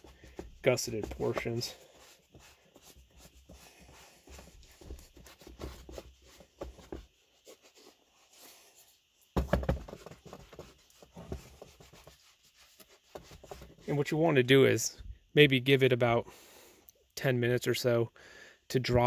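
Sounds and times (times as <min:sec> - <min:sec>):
pad rubbing leather boot: 0:00.0 - 0:08.8, 0:09.4 - 0:14.0
boot thump: 0:04.3 - 0:07.1, 0:09.4 - 0:11.7.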